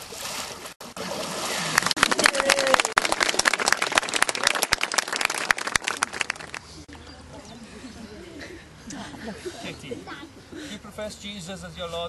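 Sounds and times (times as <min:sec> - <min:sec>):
water splash: 0:00.0 - 0:03.7
crowd clapping: 0:01.7 - 0:06.7.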